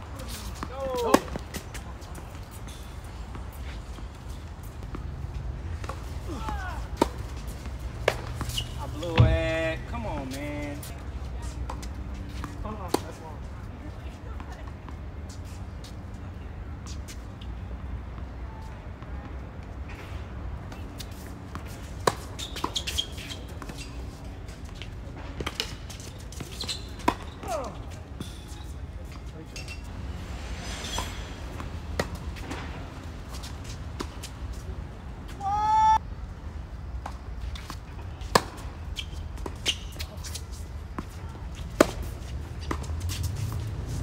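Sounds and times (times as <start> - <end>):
racket hitting tennis ball: 0.2 - 2.6, 5.7 - 9.4, 20.7 - 23.9, 28.2 - 34.6, 37.0 - 44.0.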